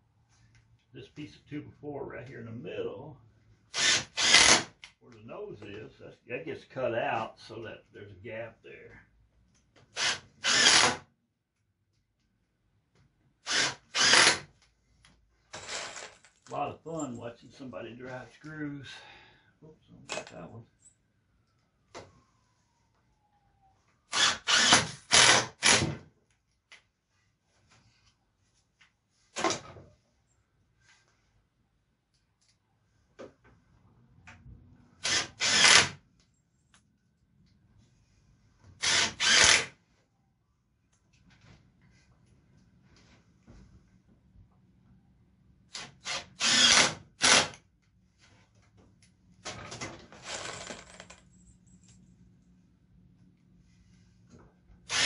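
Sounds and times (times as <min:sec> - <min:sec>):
cordless drill driving screws: 0:03.7 - 0:04.9, 0:09.9 - 0:11.0, 0:13.4 - 0:14.5, 0:15.5 - 0:16.2, 0:24.1 - 0:25.9, 0:35.0 - 0:36.0, 0:38.8 - 0:39.7, 0:45.7 - 0:47.6.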